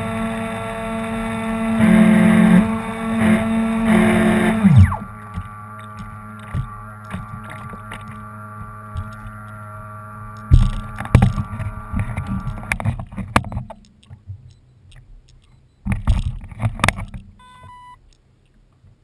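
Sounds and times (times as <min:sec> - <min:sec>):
model boat motor humming: 0:00.0 - 0:14.2
short electronic beep: 0:17.4 - 0:18.0.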